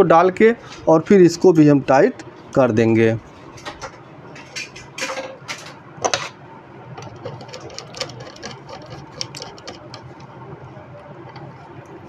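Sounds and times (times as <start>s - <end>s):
screwdriver ticking and scraping: 7.0s - 10.4s.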